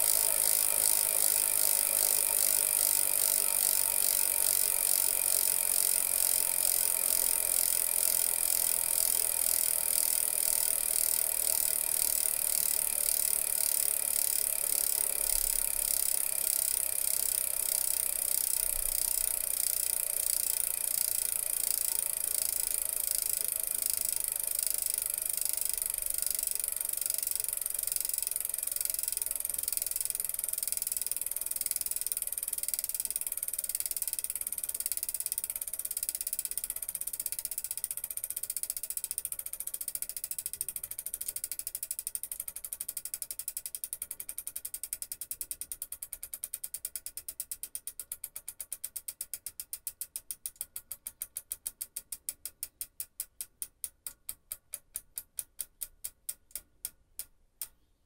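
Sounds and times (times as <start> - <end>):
bicycle freewheel ratcheting: 0.0 - 57.7.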